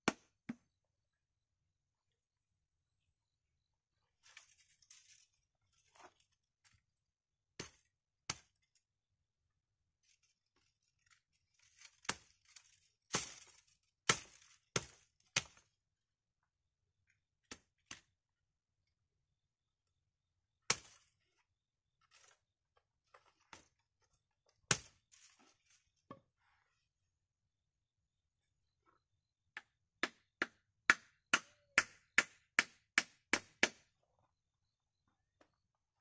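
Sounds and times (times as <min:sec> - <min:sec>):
hatchet chopping branch: 0:00.0 - 0:00.6, 0:11.7 - 0:15.6, 0:20.7 - 0:21.0, 0:24.7 - 0:25.0, 0:29.6 - 0:33.9.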